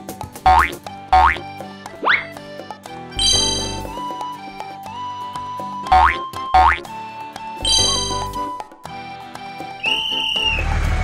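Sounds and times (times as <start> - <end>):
cartoon background music: 0.0 - 11.0
cartoon tractor engine pulsing: 0.5 - 1.4, 3.2 - 4.1, 5.9 - 6.9, 7.6 - 8.6
short high whistle: 9.8 - 10.7.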